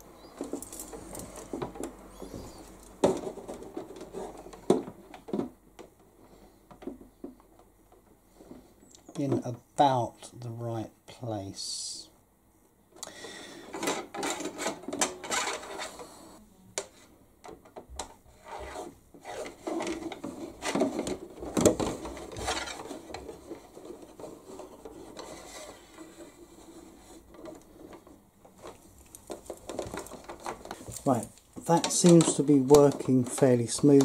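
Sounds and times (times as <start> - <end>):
clicks and knocks of handling: 0.0 - 9.6, 27.2 - 34.0
wire rod scraping through plastic: 13.7 - 16.0, 18.3 - 34.0.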